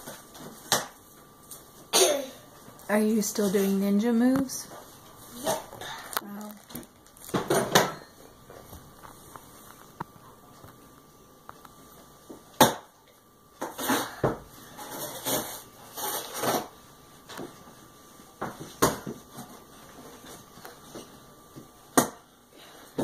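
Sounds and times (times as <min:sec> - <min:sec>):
packing rustling and crinkling: 0:06.3 - 0:07.5.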